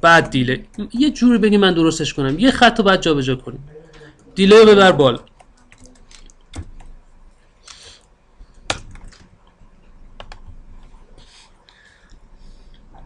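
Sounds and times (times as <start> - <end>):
keyboard and mouse clicks: 5.2 - 7.0, 8.5 - 11.0.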